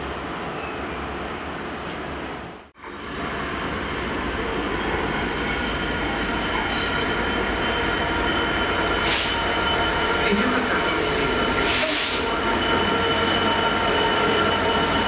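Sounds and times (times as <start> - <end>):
diesel locomotive rumbling: 0.0 - 15.0.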